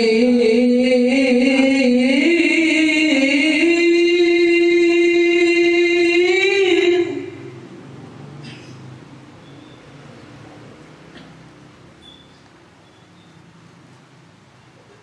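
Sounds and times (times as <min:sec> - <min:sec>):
man chanting through microphone: 0:00.0 - 0:07.6.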